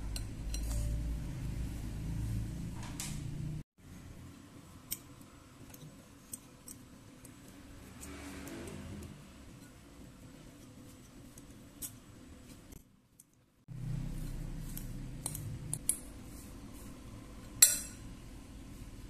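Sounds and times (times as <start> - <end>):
fork mashing potato: 14.0 - 18.0
fork clinking against glass: 17.6 - 18.0.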